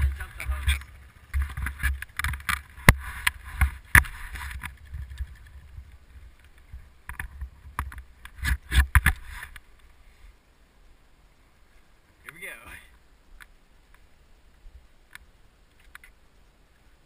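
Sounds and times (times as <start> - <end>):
camera knocks and rattles: 0.0 - 9.6.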